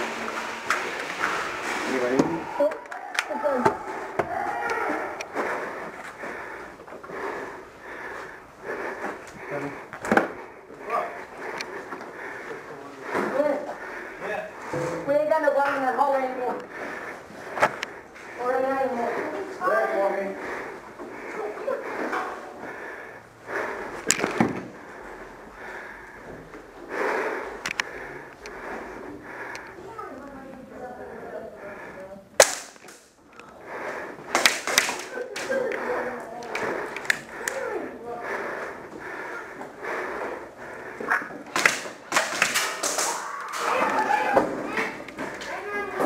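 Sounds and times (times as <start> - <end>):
person breathing softly: 5.3 - 14.9, 20.2 - 32.3, 35.1 - 41.4
sharp cracks: 32.4 - 33.2, 34.3 - 35.6, 41.5 - 44.0.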